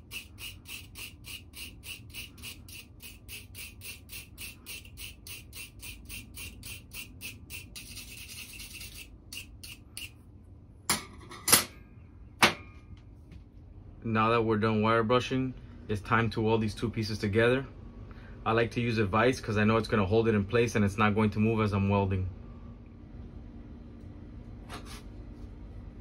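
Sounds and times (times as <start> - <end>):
wire brush scrubbing metal: 0.0 - 10.1.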